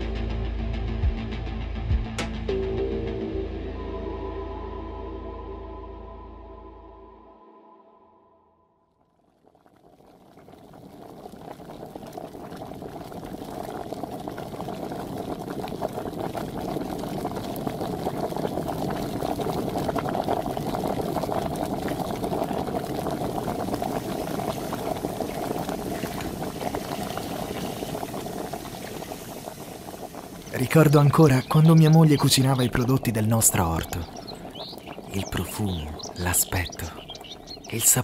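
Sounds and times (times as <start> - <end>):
water bubbling at a boil: 9.3 - 38.0.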